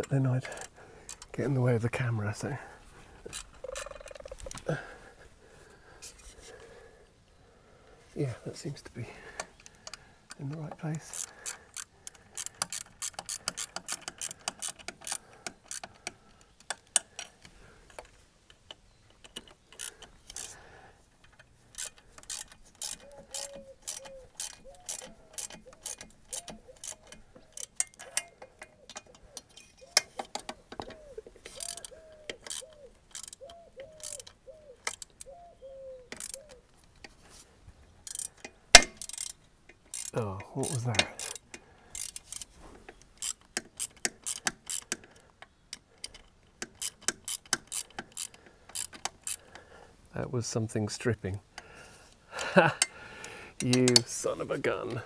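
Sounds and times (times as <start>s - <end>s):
ratchet wrench clicking: 11.0s - 17.3s, 18.7s - 20.6s, 21.2s - 35.3s, 36.1s - 36.6s, 38.0s - 49.6s.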